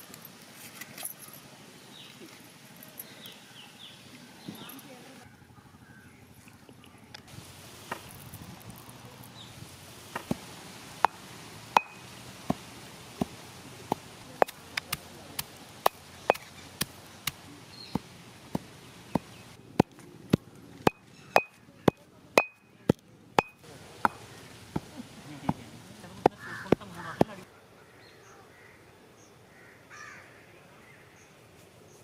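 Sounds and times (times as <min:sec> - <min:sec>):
stone pestle pounding in mortar: 0:18.5 - 0:22.6, 0:23.4 - 0:24.2.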